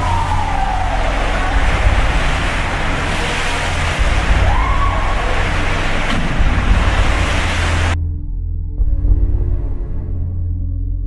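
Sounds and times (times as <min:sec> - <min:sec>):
water sloshing in a pool: 0:00.0 - 0:08.0
low rumble: 0:00.0 - 0:11.0.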